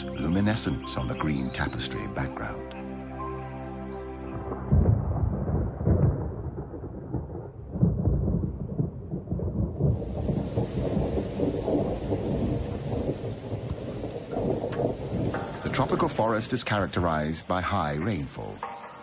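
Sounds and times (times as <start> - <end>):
thunder rumbling: 4.3 - 17.4
heavy rain hissing: 9.8 - 18.6.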